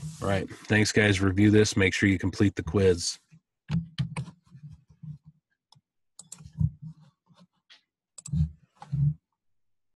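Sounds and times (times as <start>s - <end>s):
clicks and knocks at a desk: 3.7s - 5.2s.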